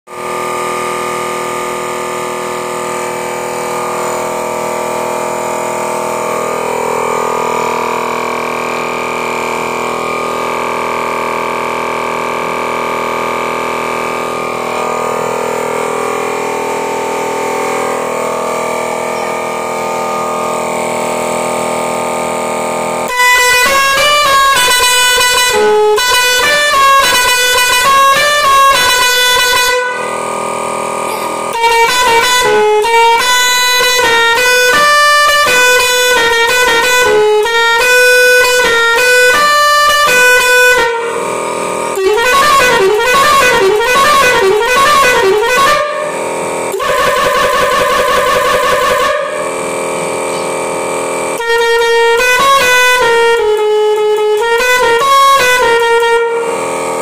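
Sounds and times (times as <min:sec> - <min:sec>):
air horn chord: 0:00.2 - 0:57.0
musical horn tune: 0:23.0 - 0:57.0.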